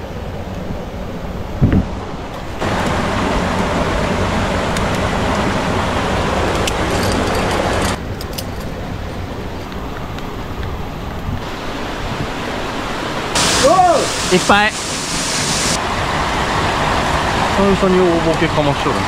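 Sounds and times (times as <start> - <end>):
stream water rushing: 2.0 - 8.0, 11.4 - 19.0
light metallic clinks: 6.6 - 8.8.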